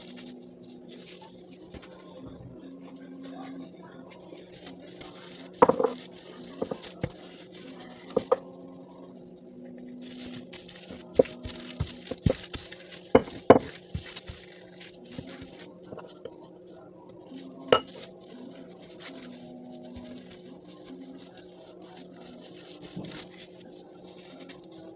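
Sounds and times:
low steady hum: 0.0 - 24.9
rolling pin knocking on table: 5.6 - 6.0.

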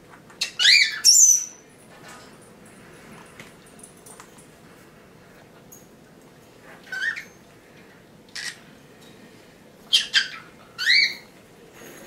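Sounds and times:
parrot squawking and chirping: 0.4 - 1.6, 6.8 - 7.4, 8.3 - 8.6, 9.8 - 11.3.

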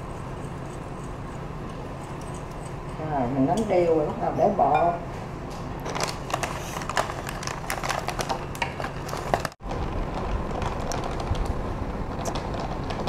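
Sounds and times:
fork scraping ceramic bowl: 0.0 - 3.0.

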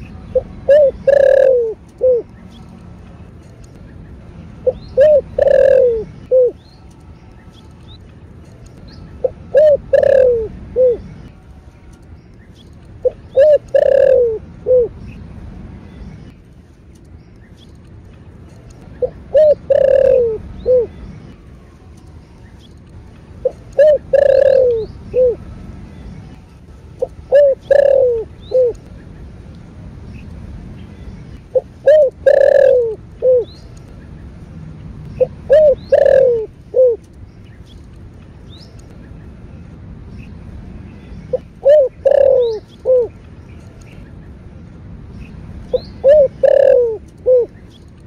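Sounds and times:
dove cooing: 0.3 - 2.3, 4.6 - 6.6, 9.2 - 11.1, 13.0 - 15.0, 19.0 - 21.0, 23.4 - 25.4, 27.0 - 28.8, 31.5 - 33.5, 35.2 - 37.1, 41.3 - 43.2, 45.7 - 47.6.

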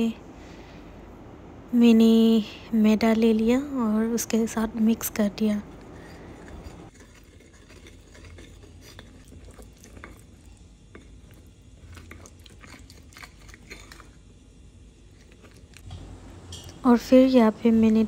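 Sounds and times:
fork scraping glass dish: 5.8 - 11.1
fork mashing wet batter: 5.8 - 14.2.

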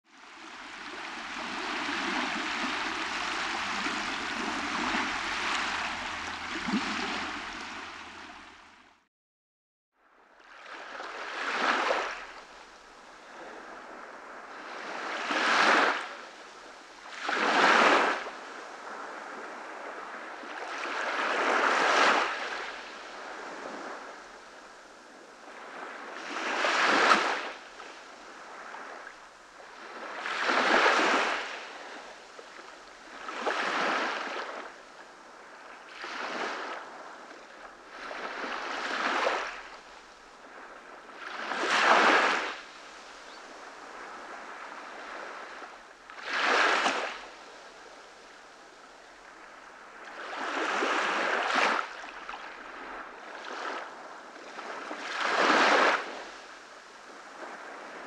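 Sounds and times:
small waves washing up beach: 0.1 - 8.9, 10.4 - 58.0
steady rushing hiss: 0.8 - 8.6.

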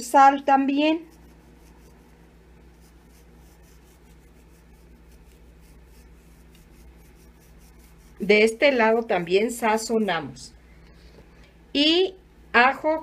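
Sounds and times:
low steady hum: 0.0 - 13.0
salt sprinkling patter: 1.0 - 10.2.

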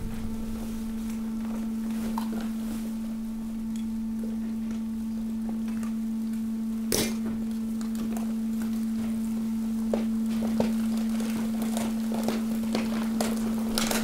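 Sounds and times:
waste compactor humming: 0.0 - 14.0
waste clicking and rattling: 9.9 - 14.0.

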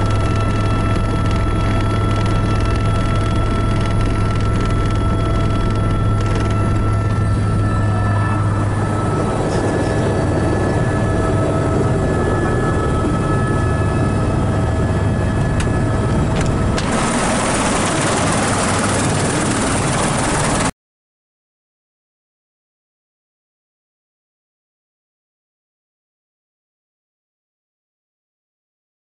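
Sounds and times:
helicopter engine and rotor droning: 0.0 - 20.7.

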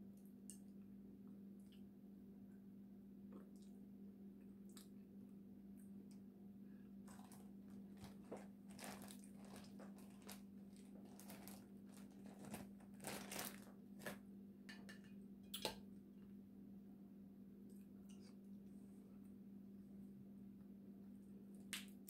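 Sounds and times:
faint steady hum: 0.0 - 22.0
plastic bag crinkling: 7.1 - 14.2.

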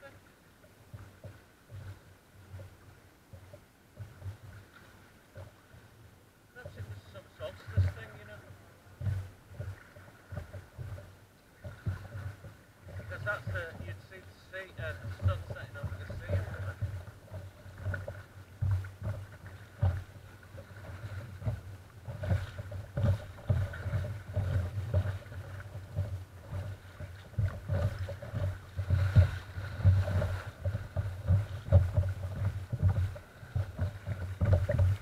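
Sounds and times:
water splashing against kayak hull: 0.0 - 35.0.

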